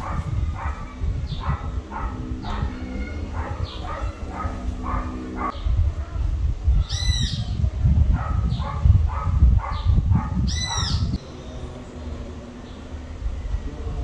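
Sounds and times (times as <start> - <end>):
dog barking: 0.0 - 5.6, 8.1 - 11.0
bird high call: 6.8 - 7.5, 9.8 - 11.8.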